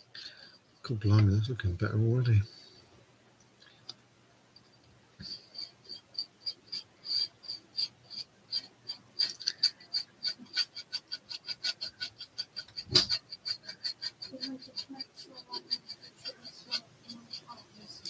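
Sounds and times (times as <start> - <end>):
paintbrush strokes: 5.2 - 18.0.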